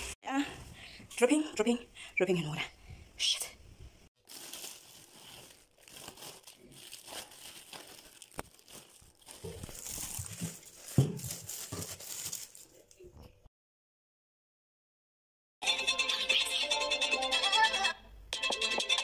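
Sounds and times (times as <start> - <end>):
plastic bag crinkling: 4.2 - 13.1.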